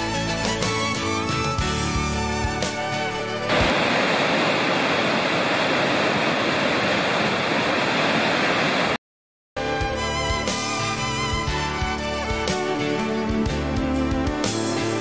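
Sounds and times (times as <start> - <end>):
background music: 0.0 - 3.6, 9.6 - 15.0
river whitewater rushing: 3.5 - 9.0.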